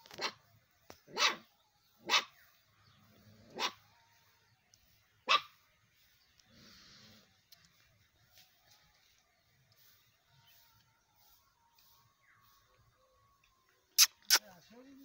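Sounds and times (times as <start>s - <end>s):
puppies barking: 1.1s - 2.4s, 3.5s - 3.8s.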